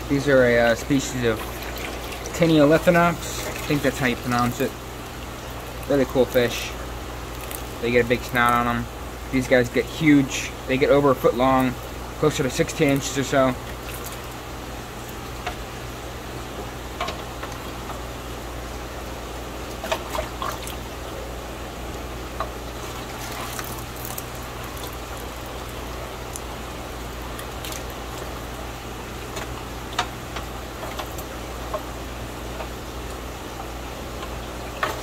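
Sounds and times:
steady low hum: 0:00.0 - 0:35.0
trickling water: 0:00.0 - 0:35.0
small splashes and knocks: 0:01.3 - 0:06.6, 0:07.3 - 0:07.8, 0:13.6 - 0:14.4, 0:19.6 - 0:20.9, 0:22.4 - 0:28.4, 0:29.2 - 0:31.9, 0:34.2 - 0:35.0.

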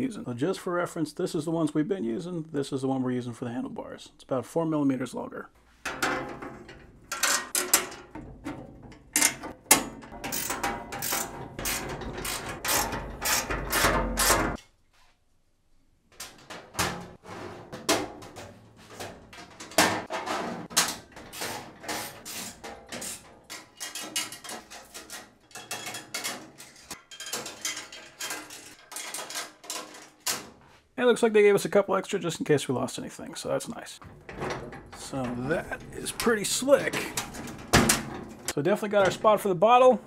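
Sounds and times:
metal parts clinking: 0:05.9 - 0:14.6, 0:19.0 - 0:30.5, 0:34.0 - 0:38.6.

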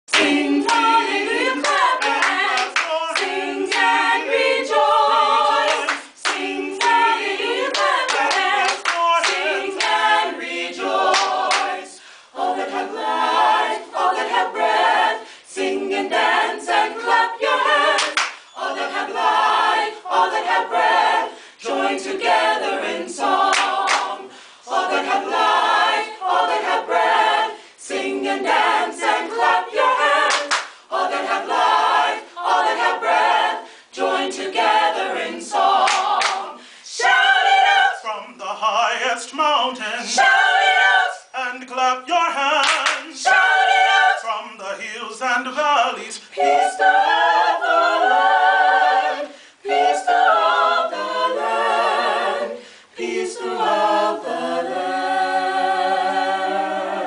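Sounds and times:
group singing a cappella: 0:00.0 - 0:57.0
hand claps: 0:00.1 - 0:00.9, 0:01.6 - 0:03.9, 0:05.7 - 0:07.0, 0:07.6 - 0:10.0, 0:11.1 - 0:11.7, 0:18.0 - 0:18.5, 0:23.5 - 0:24.1, 0:30.3 - 0:30.8, 0:35.8 - 0:36.4, 0:42.6 - 0:43.1.

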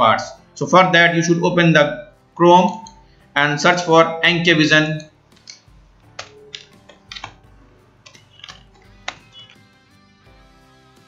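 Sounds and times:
soft background music: 0:00.0 - 0:11.0
keyboard typing clicks: 0:05.0 - 0:09.6.

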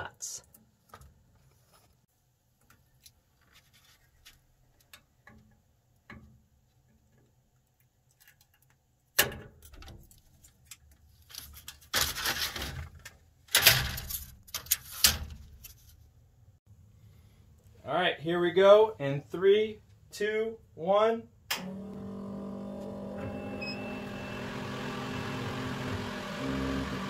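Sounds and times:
loud rustling handling noise: 0:10.0 - 0:13.0.

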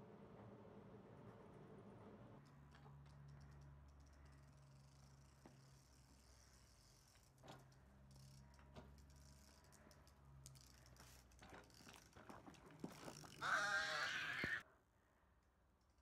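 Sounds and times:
tricycle rattling on asphalt: 0:03.2 - 0:14.6.

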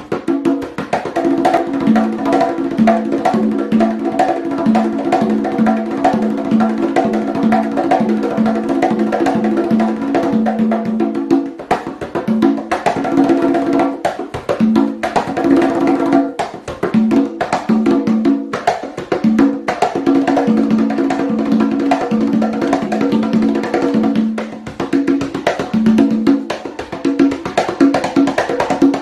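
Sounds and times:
conga drums played by hand: 0:00.0 - 0:29.0.

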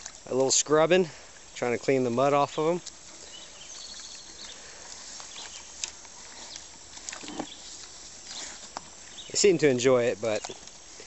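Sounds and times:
pigs eating: 0:00.0 - 0:11.0
pigs grunting: 0:06.1 - 0:09.2.

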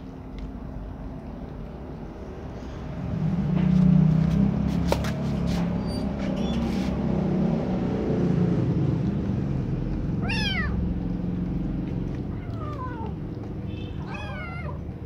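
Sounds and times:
kitten meowing: 0:10.2 - 0:10.8, 0:12.3 - 0:14.8.

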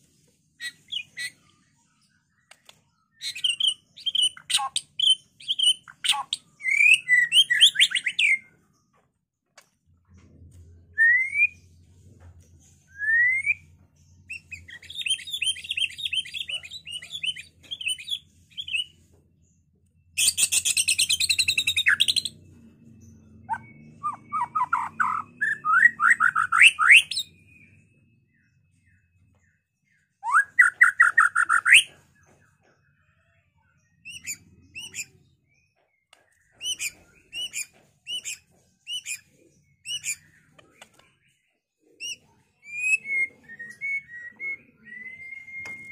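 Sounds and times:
bird singing varied song: 0:00.0 - 0:45.9.

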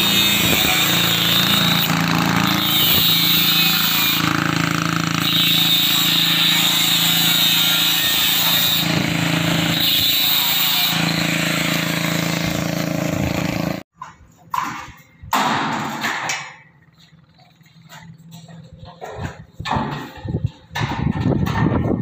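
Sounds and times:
angle grinder cutting steel: 0:00.0 - 0:13.9
knocks and rattles: 0:13.9 - 0:22.0.

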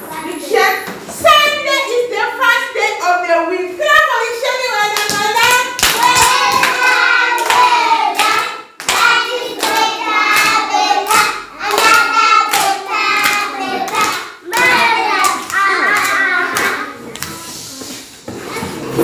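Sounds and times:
hands clapping a steady beat: 0:05.0 - 0:17.4
children singing: 0:05.9 - 0:17.3.

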